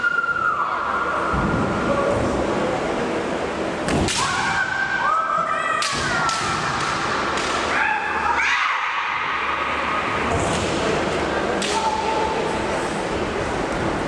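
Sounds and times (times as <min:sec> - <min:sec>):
bamboo sword strikes: 0:03.9 - 0:04.5.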